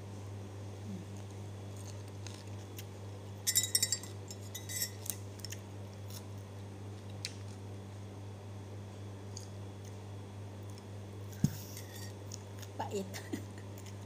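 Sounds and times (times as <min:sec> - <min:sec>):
steady low hum: 0:00.0 - 0:14.0
tableware clinking on ceramic: 0:03.5 - 0:05.1.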